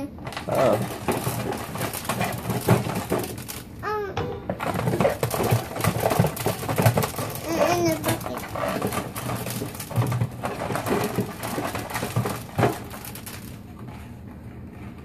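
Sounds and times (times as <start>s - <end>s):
grain mill crushing grain: 0.0s - 15.0s.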